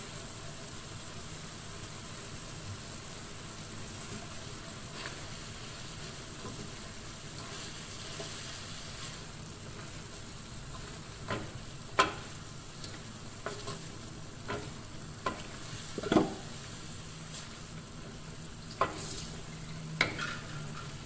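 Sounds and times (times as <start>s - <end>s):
food sizzling in a wok: 0.0s - 21.0s
spatula scraping wok: 3.8s - 21.0s
spatula knocking against wok: 11.2s - 12.3s.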